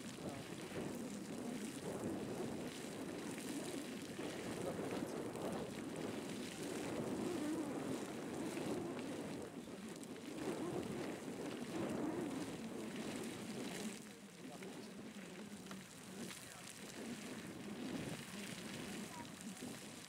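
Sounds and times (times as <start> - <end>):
geyser water jet rushing: 0.0 - 20.0
wind on microphone: 0.0 - 20.0.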